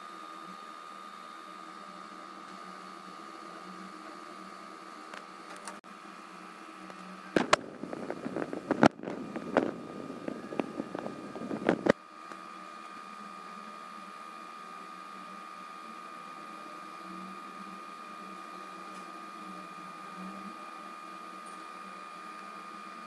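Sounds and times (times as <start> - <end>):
appliance hum with high whine: 0.0 - 23.0
sharp clicks and knocks: 7.4 - 12.0.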